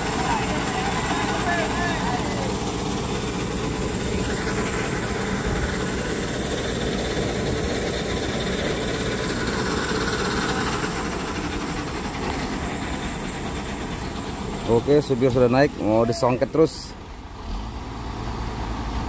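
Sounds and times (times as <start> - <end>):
heavy truck engine running: 0.0 - 19.0.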